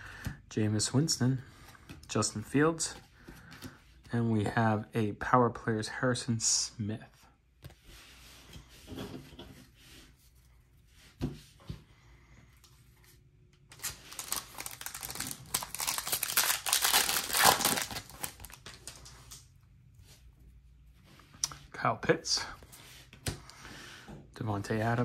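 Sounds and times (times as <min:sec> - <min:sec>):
foil wrapper crinkling and tearing: 0:13.7 - 0:19.4.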